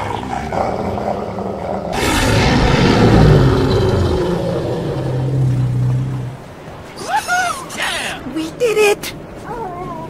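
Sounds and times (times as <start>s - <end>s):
low rumble: 1.9s - 6.8s
sudden loud crash: 2.0s - 5.2s.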